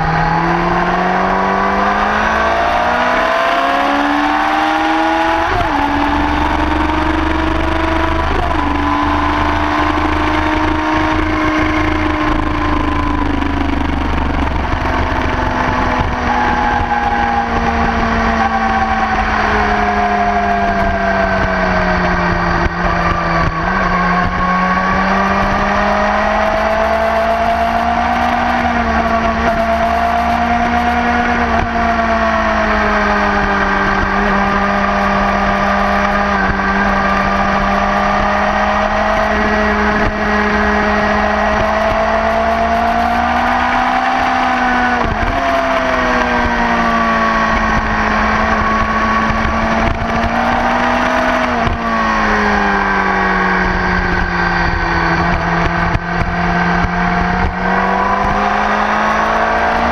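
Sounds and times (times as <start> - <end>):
motorcycle engine revving high: 0.0 - 59.9.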